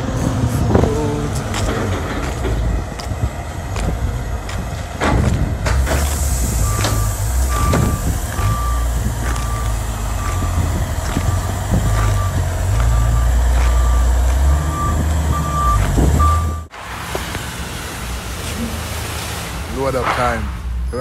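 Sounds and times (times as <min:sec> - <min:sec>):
forklift engine drone: 0:00.0 - 0:21.0
forklift reversing alarm beeping: 0:05.9 - 0:16.7.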